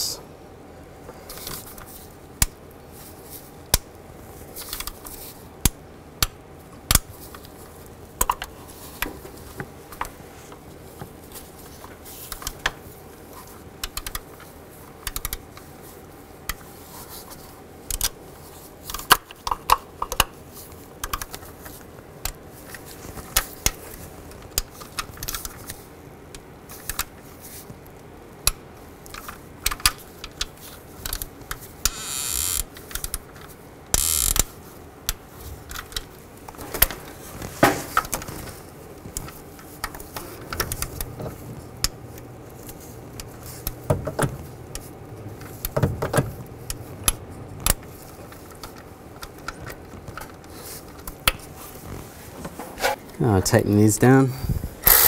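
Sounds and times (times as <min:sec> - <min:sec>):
sharp torque wrench clicks: 0:31.8 - 0:32.7, 0:34.0 - 0:34.5
torque wrench ratchet clicks: 0:31.9 - 0:32.7, 0:34.0 - 0:34.4.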